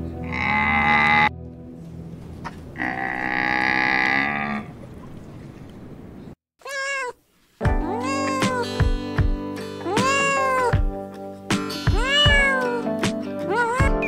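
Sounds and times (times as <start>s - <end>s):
camel bellowing: 0.2s - 1.4s, 2.4s - 4.8s
cat meow: 6.6s - 7.2s, 7.8s - 8.6s, 9.9s - 10.7s, 11.9s - 12.9s, 13.5s - 14.0s.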